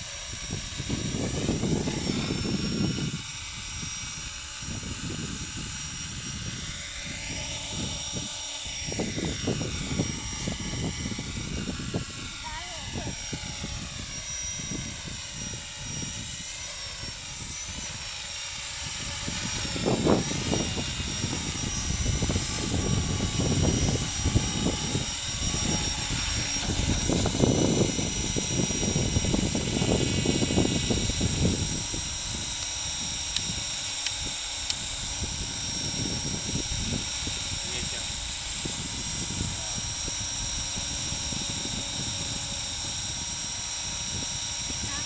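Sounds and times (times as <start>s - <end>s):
low buffeting rumble: 0.0s - 45.0s
model helicopter whine: 0.0s - 45.0s.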